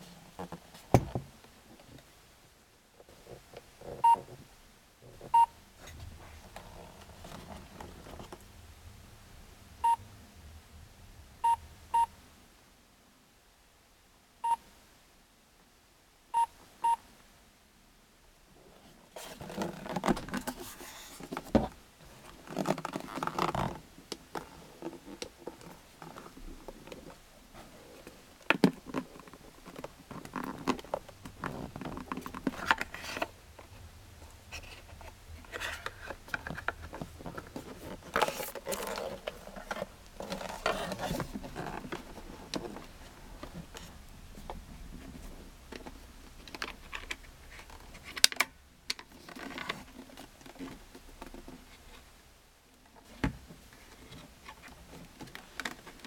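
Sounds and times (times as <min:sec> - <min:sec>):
plastic case handling clicks and knocks: 0:28.4 - 0:33.3, 0:35.5 - 0:44.7.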